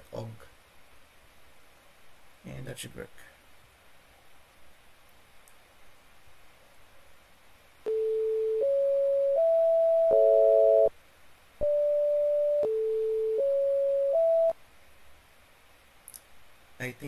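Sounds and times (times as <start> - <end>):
pure electronic tones: 7.9 - 10.9, 11.6 - 14.6.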